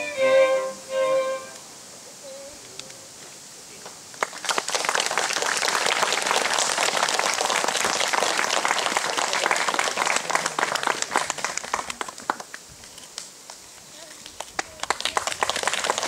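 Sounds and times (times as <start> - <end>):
audience applauding: 4.2 - 12.7, 14.2 - 16.0.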